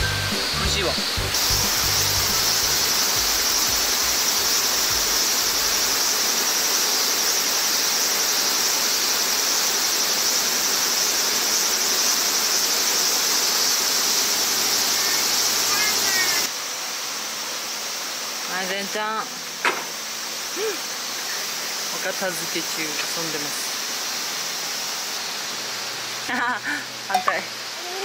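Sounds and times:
rushing stream water: 0:00.0 - 0:16.5
cicada drone: 0:00.0 - 0:28.0.

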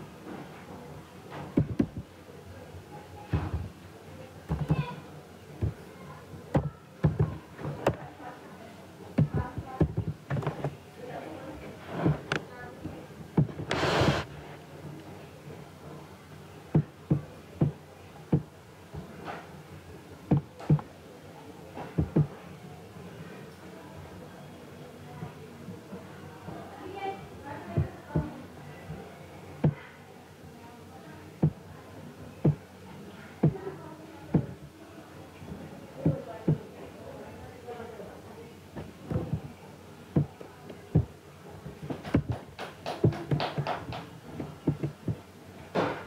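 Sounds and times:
faint background noise: 0:00.0 - 0:46.0
faint low hum: 0:00.0 - 0:46.0
dull knocks: 0:01.6 - 0:02.0, 0:04.5 - 0:04.8, 0:05.6 - 0:05.8, 0:09.2 - 0:10.7, 0:22.0 - 0:22.3, 0:40.2 - 0:41.1, 0:41.9 - 0:45.2
short noise hiss: 0:13.6 - 0:14.4.

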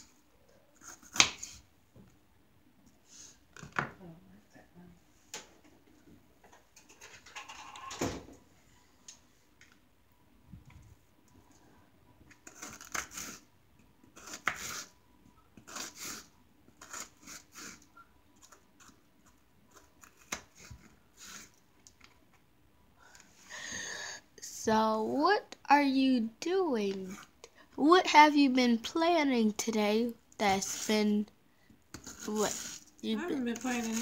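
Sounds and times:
knife cutting onion on wooden board: 0:14.1 - 0:14.9, 0:15.6 - 0:19.0, 0:31.9 - 0:34.0.

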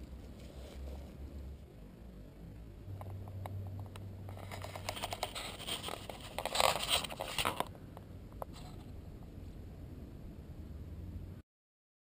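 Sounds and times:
dry scraping and crackling: 0:00.0 - 0:01.7, 0:03.0 - 0:07.7
faint low hum: 0:00.0 - 0:11.4.

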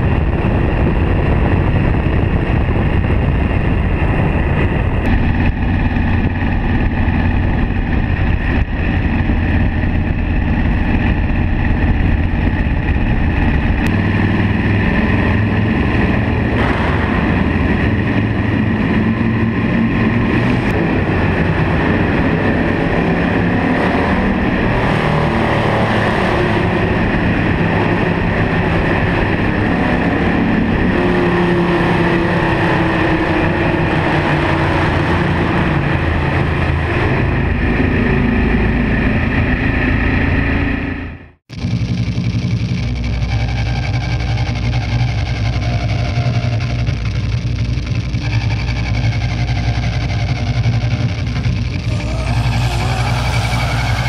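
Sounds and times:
wind noise: 0:00.0 - 0:41.2, 0:51.1 - 0:54.0
road noise: 0:00.0 - 0:54.0
vehicle engine running: 0:00.0 - 0:54.0.

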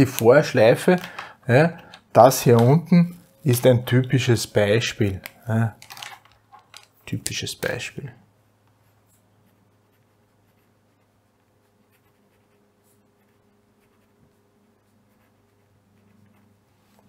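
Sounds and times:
low electrical hum: 0:00.0 - 0:17.0
pen strokes on paper: 0:08.8 - 0:17.0.

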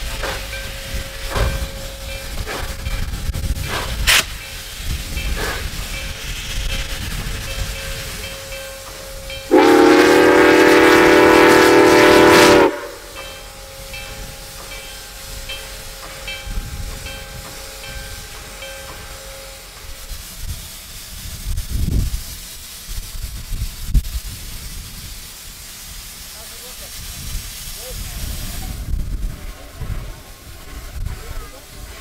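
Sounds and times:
steam hissing: 0:00.0 - 0:32.0
steam whistle blast: 0:09.5 - 0:13.2.

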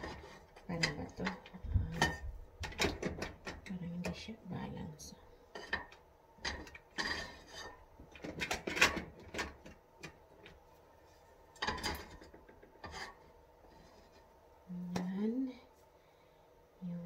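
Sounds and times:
cookware knocking and clinking: 0:11.6 - 0:13.1.

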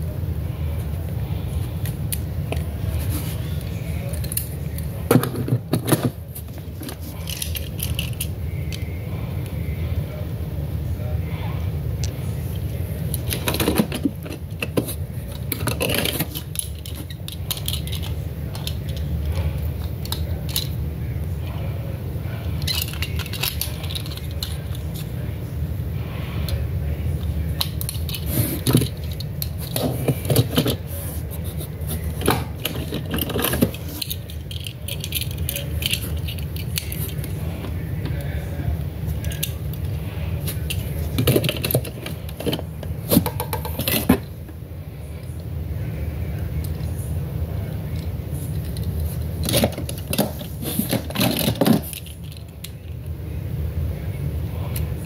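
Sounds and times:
toy cars clicking and rattling: 0:04.0 - 0:08.8, 0:13.1 - 0:19.4, 0:20.0 - 0:20.8, 0:22.6 - 0:25.1, 0:27.6 - 0:30.9, 0:32.0 - 0:37.4, 0:48.0 - 0:52.9.

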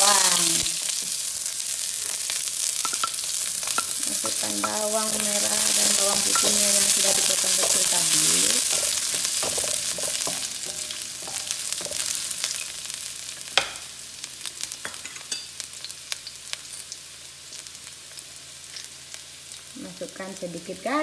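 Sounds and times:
oil popping and crackling: 0:00.0 - 0:13.8
food sizzling in hot oil: 0:00.0 - 0:21.0
wooden spatula stirring in wok: 0:03.2 - 0:12.7.

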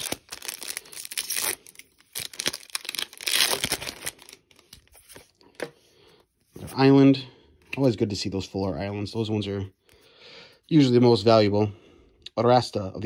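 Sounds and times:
foil wrapper crinkling and tearing: 0:00.0 - 0:04.9.

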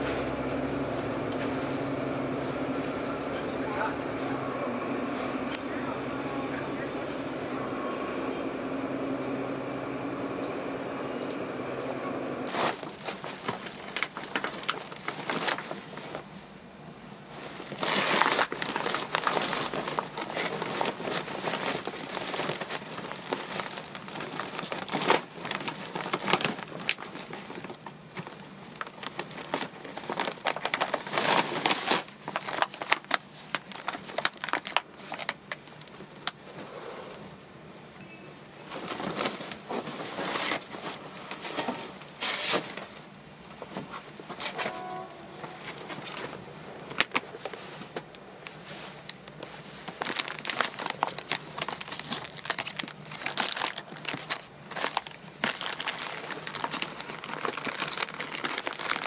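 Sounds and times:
plastic bags rustling and crinkling: 0:12.4 - 0:16.4, 0:17.3 - 0:36.7, 0:38.6 - 0:59.0.

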